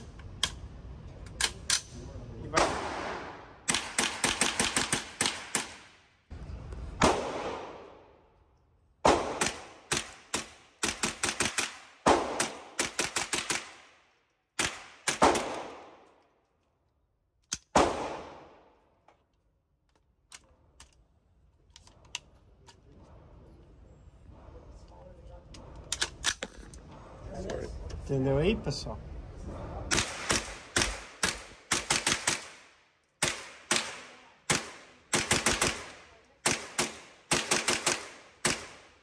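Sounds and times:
rifle gunfire with echoes: 2.5s - 6.0s, 7.0s - 8.1s, 9.0s - 14.0s, 14.6s - 16.0s, 17.7s - 18.7s, 29.9s - 39.0s.

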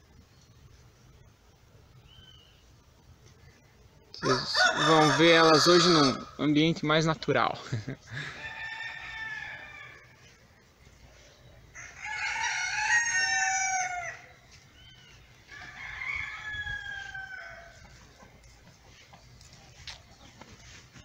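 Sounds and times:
roosters crowing: 4.2s - 6.5s, 8.0s - 10.5s, 11.5s - 20.0s.

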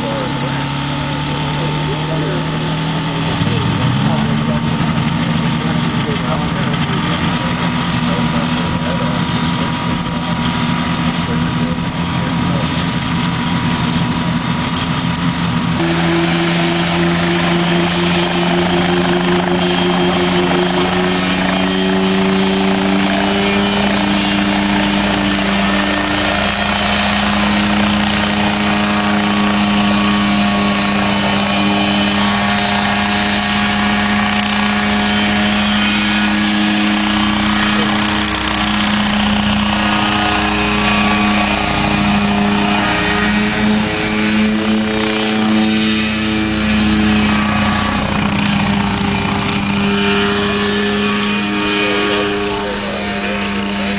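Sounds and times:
helicopter engine and rotor noise: 0.0s - 53.9s.

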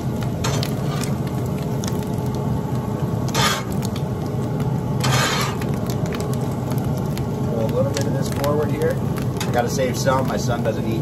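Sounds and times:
steady low hum: 0.0s - 11.0s
metal spatula scraping griddle: 3.3s - 3.8s, 5.0s - 5.7s.

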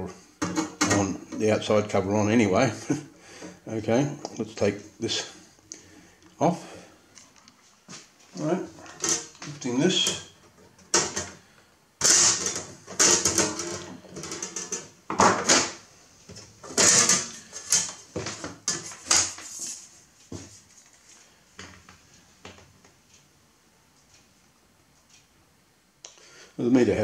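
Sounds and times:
metallic scraping and clattering: 16.6s - 19.8s.

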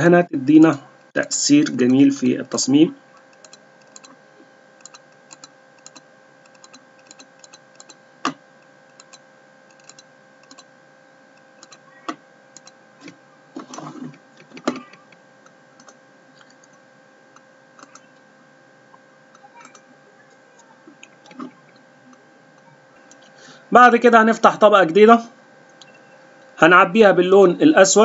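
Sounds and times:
electrical hum: 0.0s - 28.0s
mouse and keyboard clicks: 4.8s - 10.7s.

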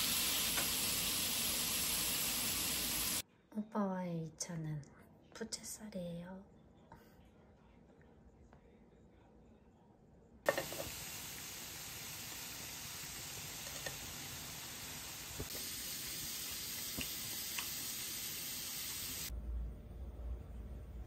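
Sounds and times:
food sizzling in a pan: 0.0s - 3.2s, 10.5s - 19.3s.

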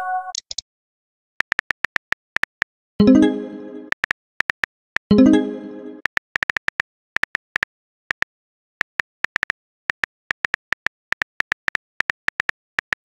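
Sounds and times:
phone keyboard click-taps: 6.4s - 13.0s.

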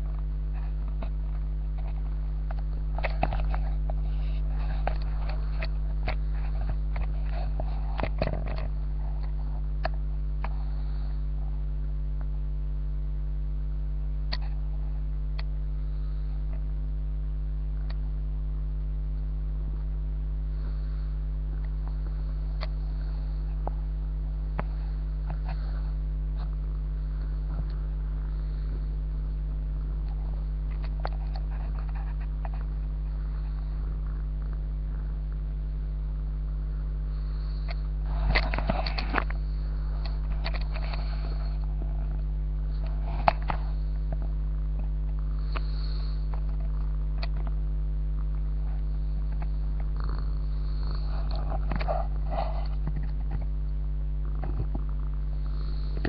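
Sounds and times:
clicks and rustles: 0.0s - 10.6s, 37.6s - 45.6s, 51.2s - 55.0s
low electrical hum: 0.0s - 56.0s.

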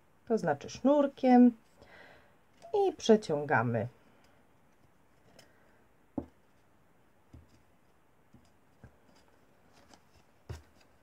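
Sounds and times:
soft knocks and taps: 6.2s - 6.4s, 7.3s - 7.7s.

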